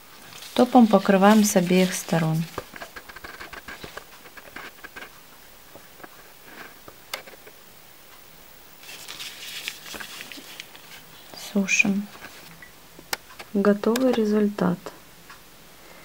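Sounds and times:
rustle: 0.0 - 5.2, 8.8 - 12.5
gloved hands handling noise: 0.2 - 5.1, 8.8 - 12.5.

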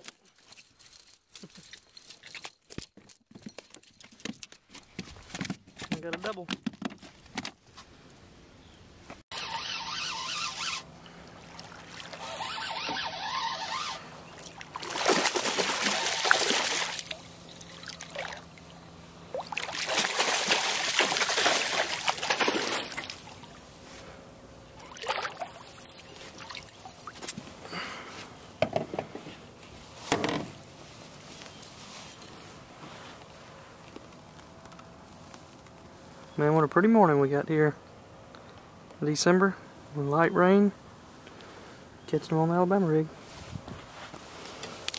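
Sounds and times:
water lapping: 9.4 - 23.7, 24.7 - 27.9
fish thrashing and splashing: 11.1 - 23.6, 24.8 - 27.4.

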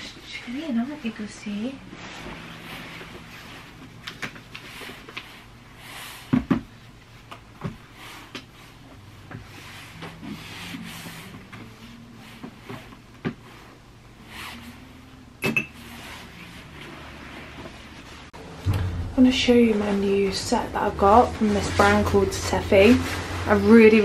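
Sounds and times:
knocks and thumps of handled objects: 18.6 - 19.4.

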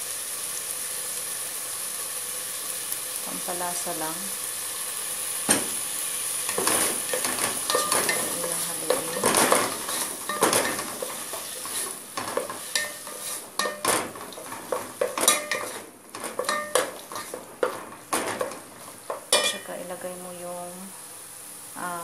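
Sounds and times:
vegetables sizzling: 0.0 - 22.0
wooden spatula scraping pot: 6.5 - 19.7.

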